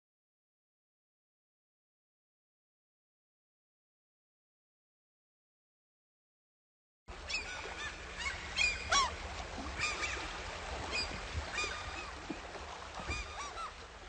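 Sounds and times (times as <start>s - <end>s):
waterbirds calling: 7.1s - 14.0s.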